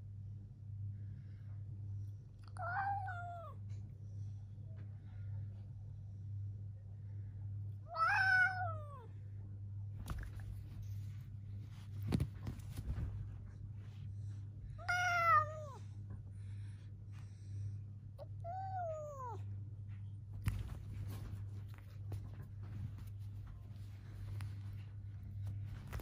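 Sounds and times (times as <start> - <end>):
steady low hum: 0.0 - 26.0
cat meowing: 2.5 - 3.6, 7.9 - 9.1, 14.8 - 15.8, 18.2 - 19.4.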